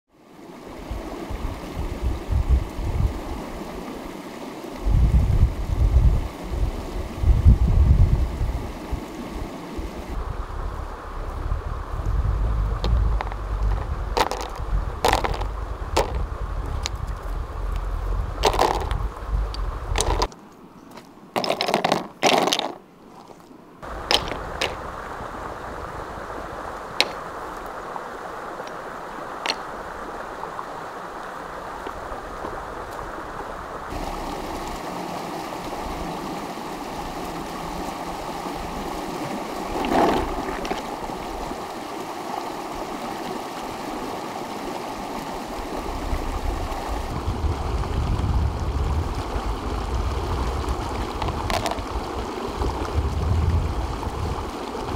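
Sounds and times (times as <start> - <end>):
stream rushing over stones: 0.2 - 20.4, 21.4 - 54.9
stones clacking on wooden tray: 12.8 - 17.2, 18.4 - 19.0, 20.0 - 20.4, 21.4 - 24.8, 27.0 - 27.2, 29.4 - 29.6, 51.2 - 51.8.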